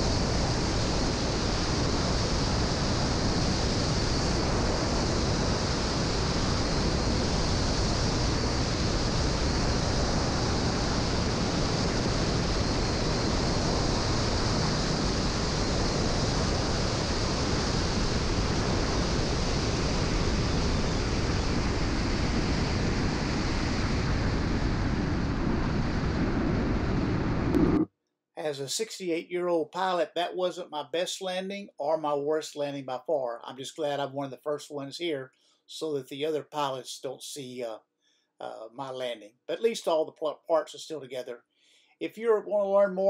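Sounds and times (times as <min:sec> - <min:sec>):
wind rushing over microphone: 0:00.0 - 0:27.9.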